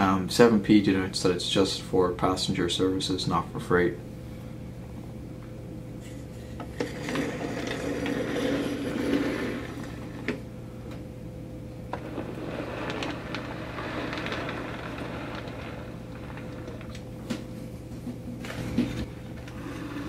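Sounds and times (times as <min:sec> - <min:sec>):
model train rumbling: 0:12.0 - 0:17.0.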